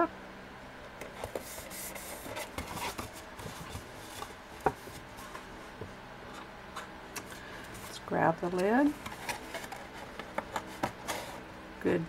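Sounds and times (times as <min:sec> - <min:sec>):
cardstock box rustling: 0:01.1 - 0:05.5, 0:07.6 - 0:11.4.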